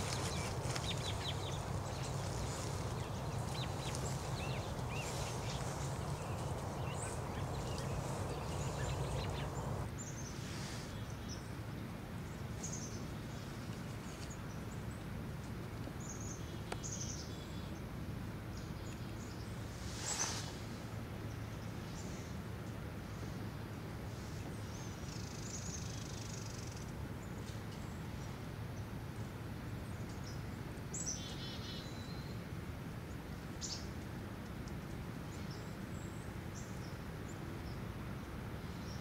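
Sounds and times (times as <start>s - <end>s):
steady low rumble: 0.0s - 9.9s
small birds chirping: 0.0s - 10.3s.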